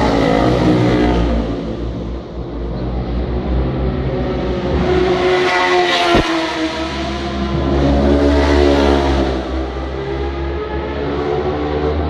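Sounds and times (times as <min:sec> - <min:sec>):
motorcycle approaching: 0:03.6 - 0:12.0
motorcycle passing at speed: 0:04.6 - 0:12.0.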